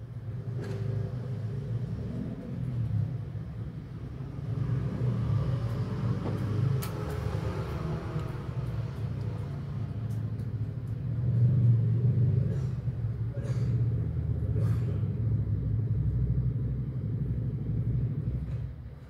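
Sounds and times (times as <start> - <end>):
low background rumble: 8.2 - 19.0.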